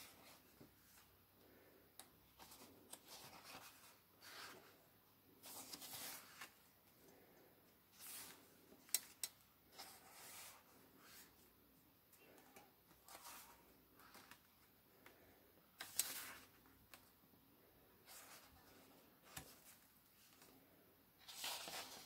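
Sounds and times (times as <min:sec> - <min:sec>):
pages being turned: 0:02.4 - 0:04.7, 0:05.4 - 0:06.6, 0:13.0 - 0:14.5, 0:15.8 - 0:16.6, 0:21.2 - 0:22.0.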